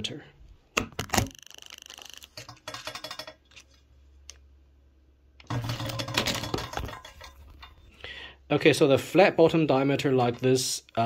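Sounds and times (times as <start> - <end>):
handling clicks and rattles: 1.1 - 3.8, 5.4 - 7.8.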